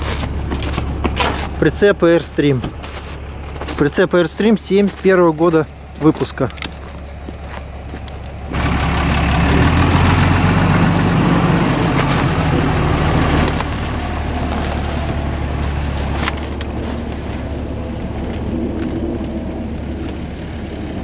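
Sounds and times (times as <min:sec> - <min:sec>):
pickup truck engine pulling away: 0:06.6 - 0:21.0.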